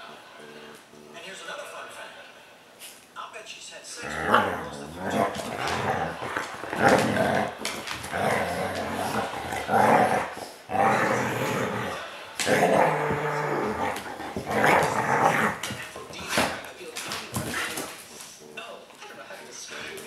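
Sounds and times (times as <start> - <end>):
dogs play-growling: 4.0 - 18.2.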